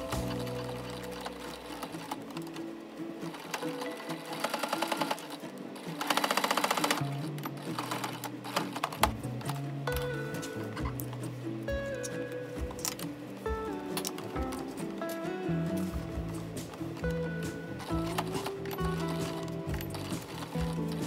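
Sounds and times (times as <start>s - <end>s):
sewing machine stitching: 3.3s - 9.1s.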